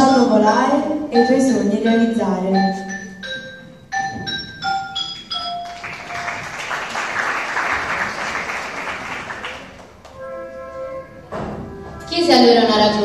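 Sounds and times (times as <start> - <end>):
pitched instrument notes: 1.0 - 7.0, 9.7 - 13.0
audience applause: 5.6 - 10.2.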